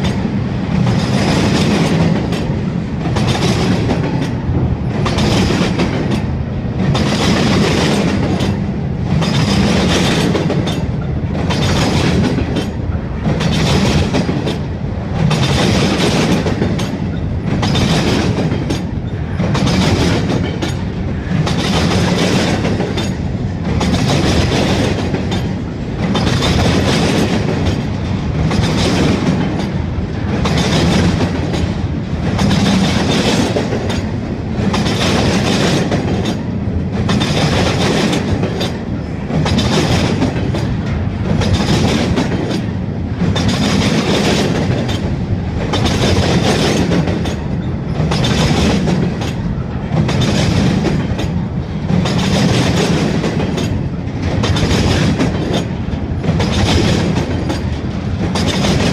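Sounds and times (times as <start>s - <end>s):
freight train wheels clacking: 0.0s - 58.9s.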